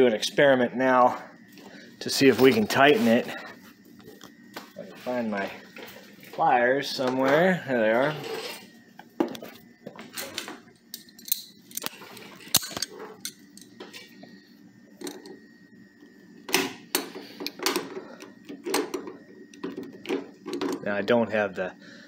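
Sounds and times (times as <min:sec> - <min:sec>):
metal pliers clicking and knocking: 0:10.9 - 0:11.9.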